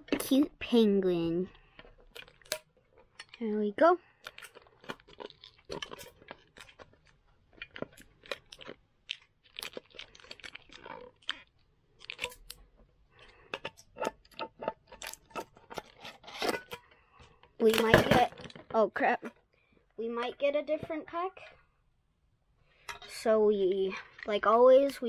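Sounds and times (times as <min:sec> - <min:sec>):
plastic wrapping crackling: 0:02.0 - 0:12.6.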